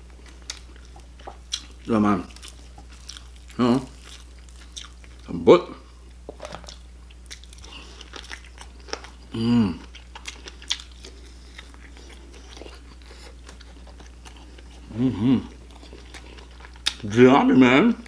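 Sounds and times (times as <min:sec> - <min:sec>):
chewing and lip smacking: 0:00.2 - 0:05.3, 0:06.0 - 0:17.1
person humming: 0:09.3 - 0:09.8, 0:14.8 - 0:15.6.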